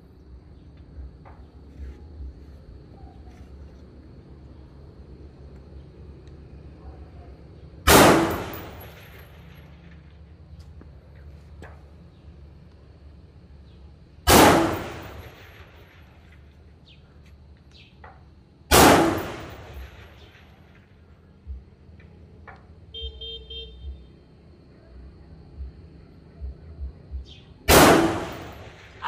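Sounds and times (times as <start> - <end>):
low background rumble: 0.0 - 29.0
rifle shot: 7.9 - 9.8, 14.3 - 16.2, 18.7 - 20.8, 27.7 - 29.0.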